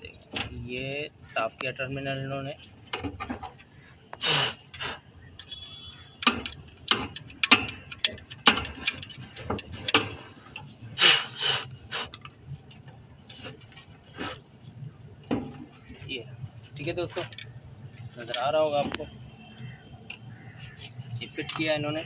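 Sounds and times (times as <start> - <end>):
metallic clicks and taps of tools: 6.2 - 10.7, 19.6 - 20.3, 21.4 - 21.8.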